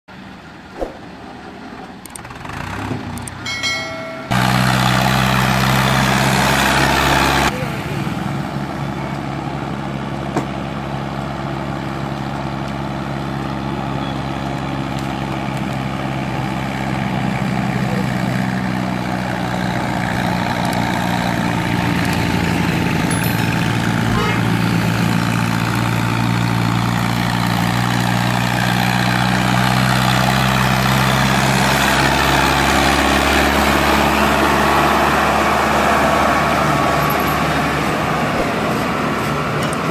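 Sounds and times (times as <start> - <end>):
diesel tractor engines under load: 0.1 - 39.9.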